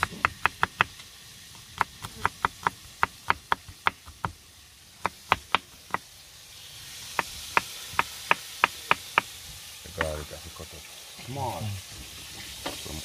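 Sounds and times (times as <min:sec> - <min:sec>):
knife chopping on cutting board: 0:00.0 - 0:01.0, 0:01.6 - 0:04.4, 0:05.0 - 0:06.0.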